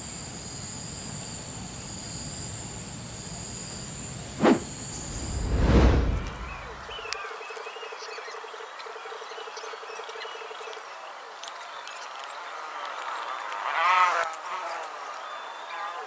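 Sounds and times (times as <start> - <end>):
deep whoosh sound effect: 4.4 - 7.0.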